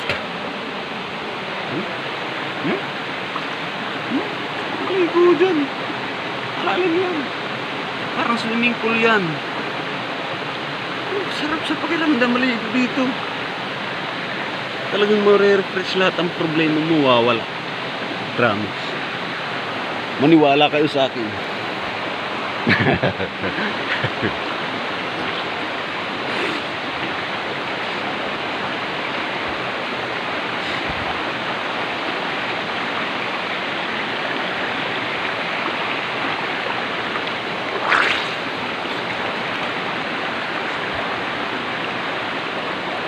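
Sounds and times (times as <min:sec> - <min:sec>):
river cascade rushing: 0:00.0 - 0:43.0
person splashing in water: 0:37.6 - 0:39.7.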